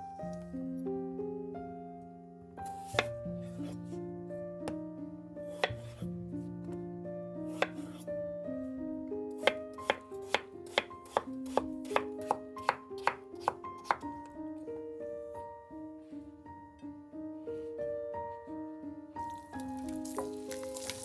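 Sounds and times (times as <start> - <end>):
knife chopping on wooden board: 2.7 - 3.8, 5.5 - 6.0, 7.5 - 8.0, 9.4 - 14.1.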